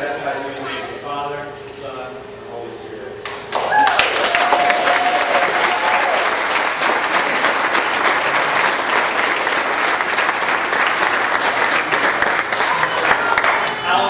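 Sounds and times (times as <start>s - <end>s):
crowd clapping: 3.2s - 14.0s.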